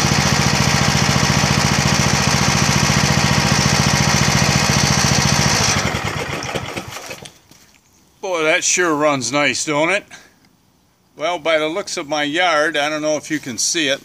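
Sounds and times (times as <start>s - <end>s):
riding mower engine running: 0.0s - 7.4s.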